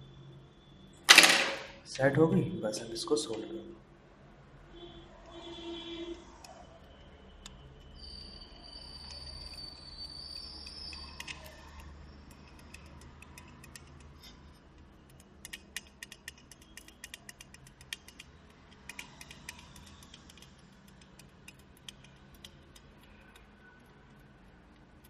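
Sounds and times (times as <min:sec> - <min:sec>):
soldering ticks and crackles: 0:06.4 - 0:25.0.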